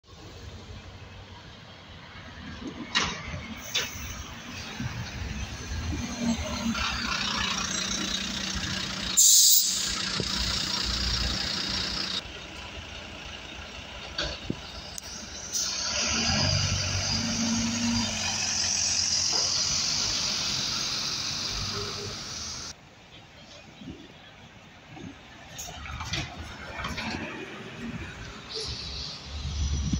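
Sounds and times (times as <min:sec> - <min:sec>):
bus engine idling: 0:00.1 - 0:29.9
compressed air hiss: 0:09.2 - 0:10.2.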